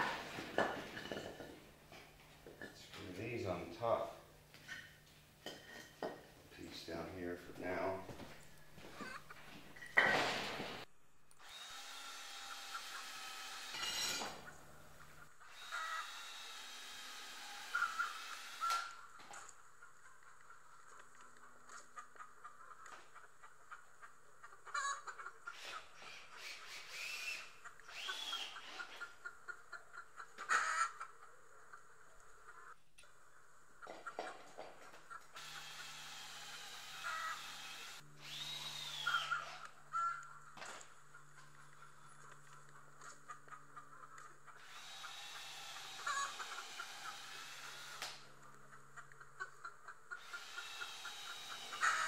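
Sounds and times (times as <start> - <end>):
cordless drill boring into wood: 11.4 - 14.5, 15.4 - 19.0, 25.5 - 29.0, 35.4 - 39.8, 44.6 - 48.2, 50.2 - 52.0
drill click: 44.6 - 48.2.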